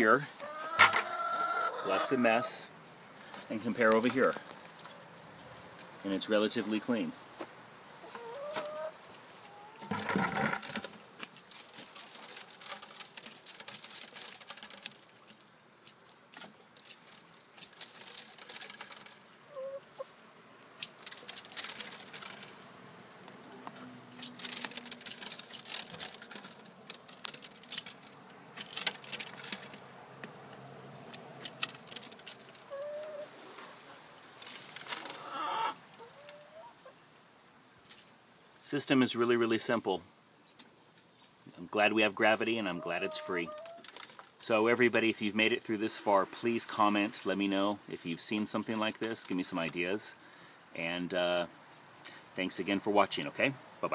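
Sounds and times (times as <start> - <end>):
chickens clucking: 0.1 - 2.7, 7.9 - 10.6, 18.0 - 20.2, 31.3 - 37.0, 42.5 - 44.0.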